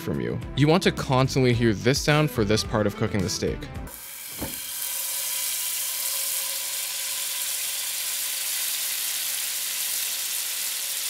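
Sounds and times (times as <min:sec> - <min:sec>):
steak sizzling in a pan: 0:03.9 - 0:11.0.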